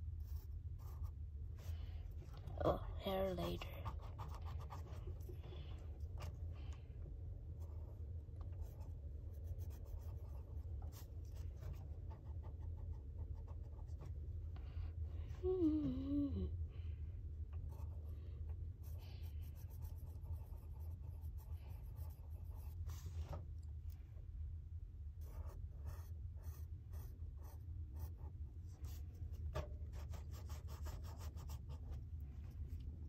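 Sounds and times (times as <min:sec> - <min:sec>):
pencil scratching on paper: 0:00.0 - 0:01.2, 0:02.6 - 0:06.5, 0:07.6 - 0:14.2, 0:17.7 - 0:18.1, 0:18.8 - 0:23.4, 0:25.2 - 0:32.0.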